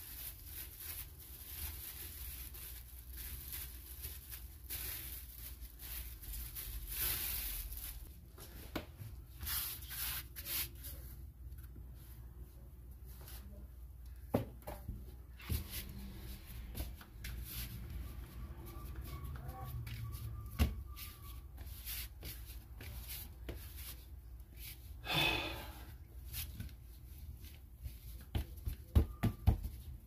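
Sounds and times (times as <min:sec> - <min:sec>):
dough being kneaded by hand: 0:26.3 - 0:30.0.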